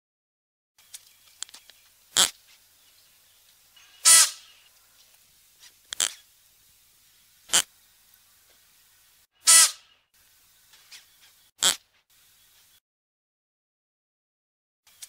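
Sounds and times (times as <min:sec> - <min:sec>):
antelope short sharp calls: 0:03.8 - 0:04.7, 0:09.4 - 0:10.0.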